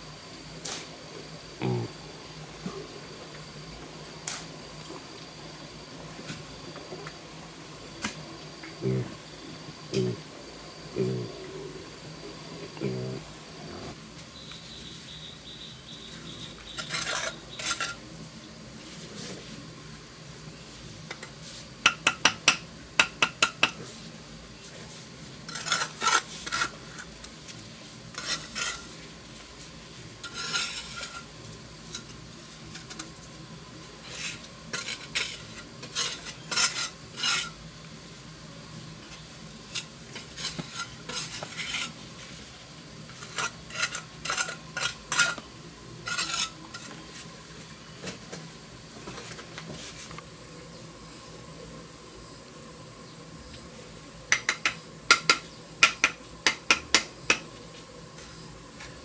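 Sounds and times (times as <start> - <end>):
trowel scraping mortar: 16.7 - 18.0, 25.4 - 27.2, 28.1 - 29.0, 30.2 - 31.3, 34.0 - 37.6, 39.7 - 42.0, 43.1 - 45.4, 46.0 - 47.0
trowel tapping brick: 54.3 - 57.4.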